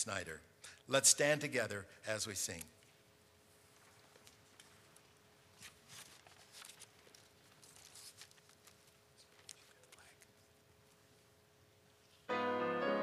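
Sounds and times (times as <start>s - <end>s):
faint steady hum: 0.0s - 13.0s
faint rustling: 2.8s - 11.3s.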